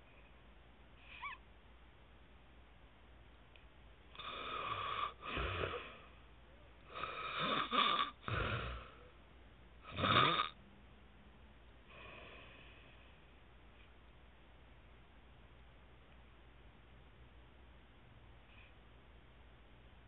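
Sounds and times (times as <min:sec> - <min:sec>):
man snoring: 0:06.9 - 0:09.0, 0:09.9 - 0:10.6.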